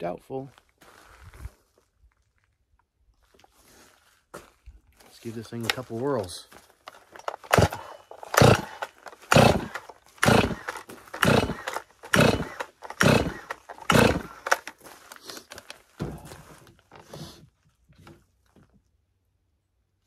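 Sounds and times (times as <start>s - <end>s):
recoil starter rope pulls: 7.0s - 15.8s
engine turning over: 7.2s - 14.8s.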